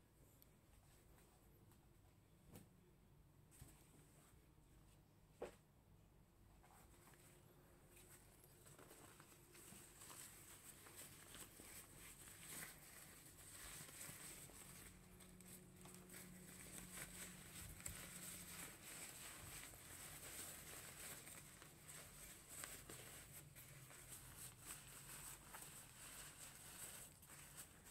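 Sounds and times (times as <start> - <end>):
thin fabric rustling and crinkling: 6.6 - 27.9.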